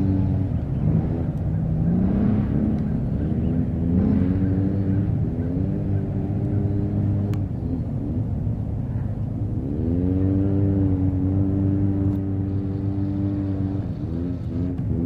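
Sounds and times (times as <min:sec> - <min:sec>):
vehicle engine idling: 0:00.0 - 0:09.7, 0:11.0 - 0:15.0.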